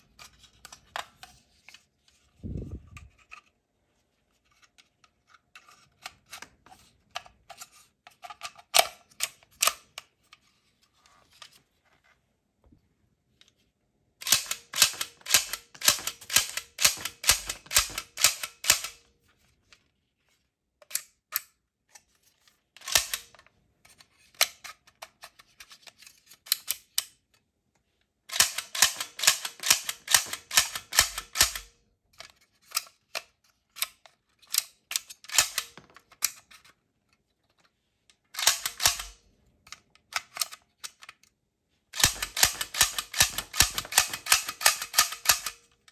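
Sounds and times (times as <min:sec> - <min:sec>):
toy blaster clicking: 0:14.2 - 0:19.0, 0:28.3 - 0:31.7, 0:38.4 - 0:39.2, 0:42.0 - 0:45.6.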